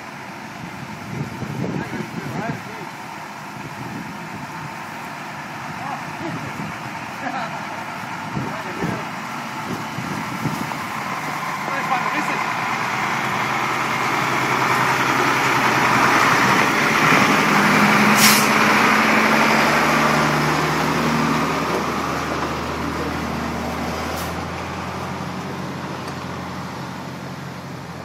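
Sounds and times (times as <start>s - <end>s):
truck diesel engine passing: 0.0s - 28.0s
short sharp hisses: 18.1s - 18.6s.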